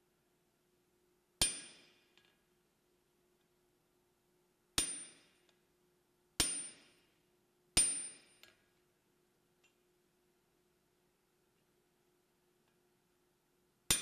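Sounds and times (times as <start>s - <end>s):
hammer striking anvil: 1.4s - 2.3s, 4.8s - 5.4s, 6.4s - 7.1s, 7.8s - 8.6s.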